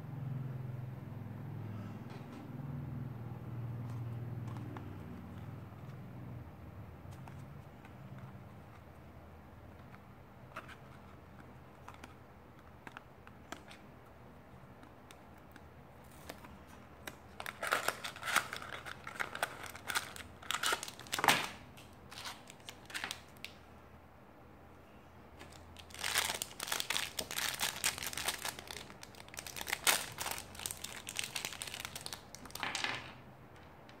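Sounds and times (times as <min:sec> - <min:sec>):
packaging crinkling and tearing: 0:15.5 - 0:23.5, 0:25.4 - 0:32.6.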